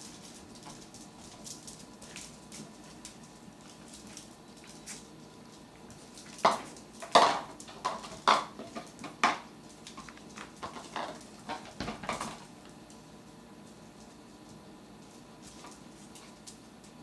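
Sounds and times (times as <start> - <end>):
plastic bowl clattering on floor: 6.4 - 9.4, 10.6 - 12.4.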